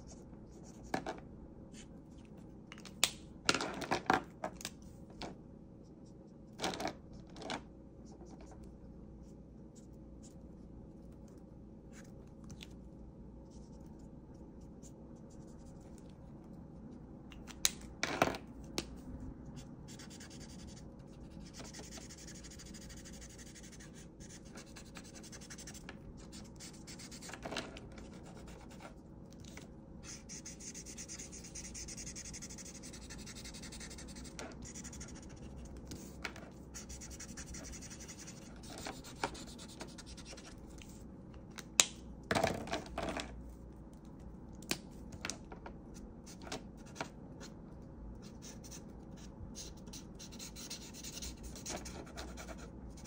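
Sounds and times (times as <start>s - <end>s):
marker scratching across paper: 19.9s - 27.4s, 30.0s - 40.6s, 48.2s - 53.0s.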